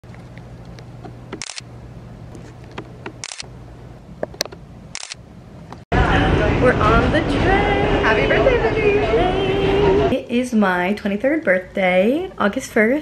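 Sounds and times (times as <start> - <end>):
low steady hum: 0.1 - 13.0
camera shutter clicks: 1.4 - 1.6, 2.7 - 3.5, 4.9 - 5.2.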